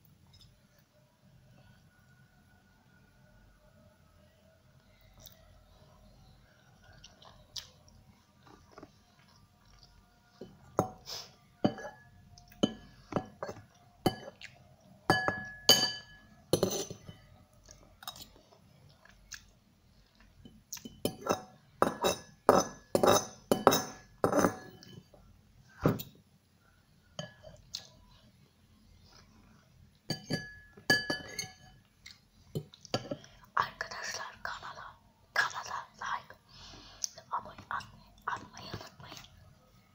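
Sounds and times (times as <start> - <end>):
cutlery clinking against ceramic bowl: 11.6 - 14.5, 15.1 - 17.3, 18.0 - 18.3, 20.4 - 25.1, 27.2 - 27.6, 30.1 - 31.8.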